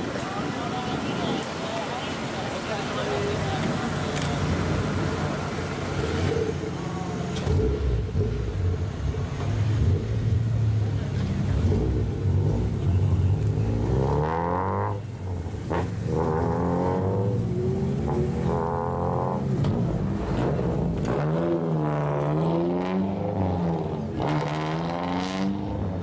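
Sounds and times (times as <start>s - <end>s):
car engine revving: 3.2s - 26.0s
car exhausts droning: 3.4s - 26.0s.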